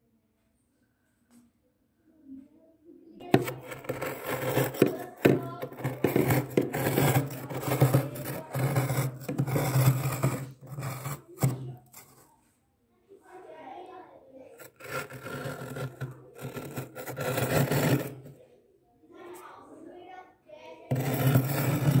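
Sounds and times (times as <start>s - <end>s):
steel spoon scraping frost: 3.2s - 12.4s, 14.6s - 18.3s, 20.9s - 22.0s.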